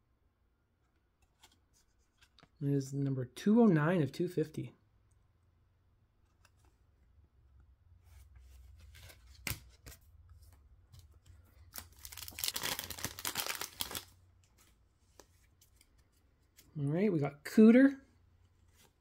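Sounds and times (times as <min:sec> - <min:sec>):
wrapper crinkling and tearing: 0:11.7 - 0:14.2.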